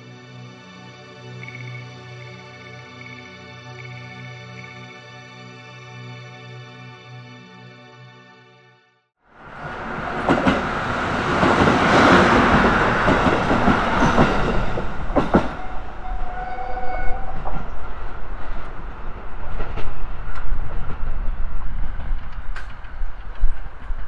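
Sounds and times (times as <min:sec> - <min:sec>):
diesel railcar rumbling past: 0:09.3 - 0:24.0
wheels clacking over rail joints: 0:09.6 - 0:24.0.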